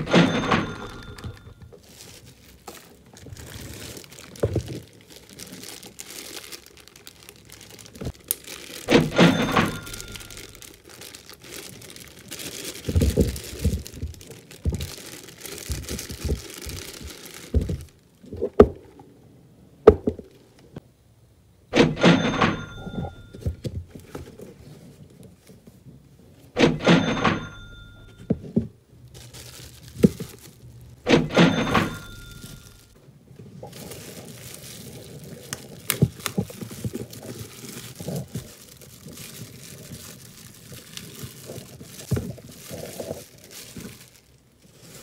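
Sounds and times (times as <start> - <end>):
plastic rustling and crinkling: 0.0 - 19.0, 22.6 - 26.5, 27.1 - 45.0
brief ringing tone: 22.3 - 23.4.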